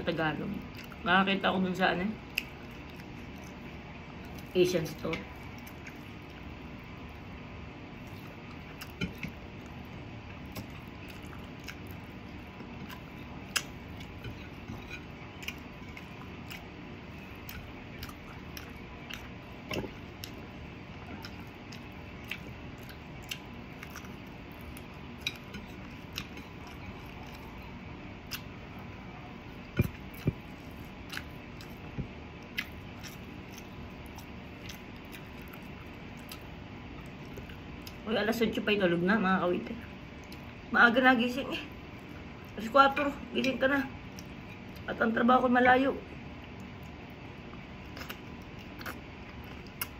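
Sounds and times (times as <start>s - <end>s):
person chewing food: 0.6s - 1.0s, 2.2s - 4.5s, 5.3s - 7.2s, 7.9s - 38.0s, 40.1s - 40.6s, 46.4s - 49.9s.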